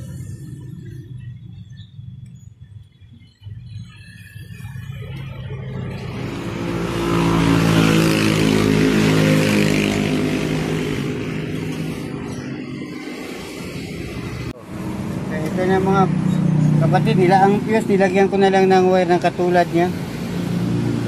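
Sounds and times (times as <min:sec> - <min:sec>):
motor vehicle passing by: 0:03.8 - 0:18.3, 0:19.6 - 0:21.0.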